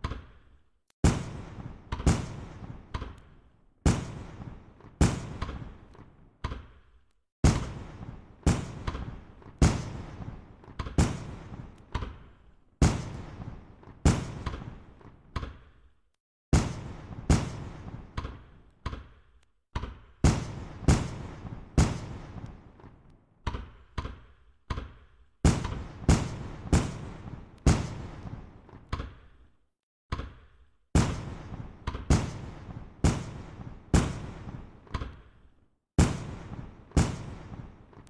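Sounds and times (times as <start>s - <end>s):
fireworks bangs echoing: 1.0s - 6.4s, 7.4s - 15.3s, 16.5s - 19.2s, 20.0s - 23.2s, 25.4s - 29.3s, 31.0s - 35.4s, 36.0s - 38.0s.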